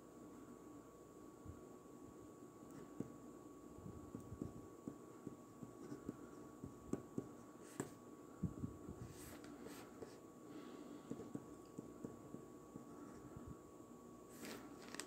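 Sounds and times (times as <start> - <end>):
pen scratching on paper: 5.2 - 8.0.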